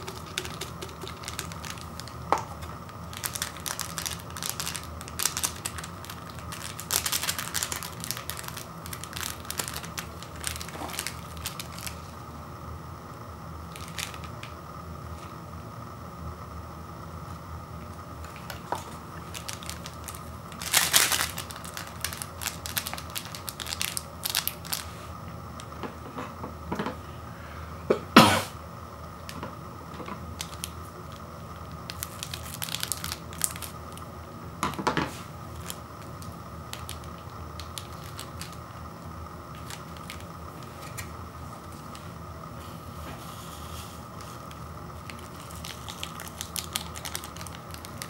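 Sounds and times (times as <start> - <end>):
foil sachet ripping: 0.0 - 12.1, 13.7 - 14.5, 18.2 - 25.0, 30.4 - 34.0, 35.5 - 38.7, 39.5 - 42.0, 44.2 - 48.0
foil sachets crinkling: 0.0 - 12.2, 13.7 - 14.5, 18.2 - 25.0, 30.3 - 34.1, 35.4 - 38.8, 39.5 - 42.2, 43.9 - 48.0.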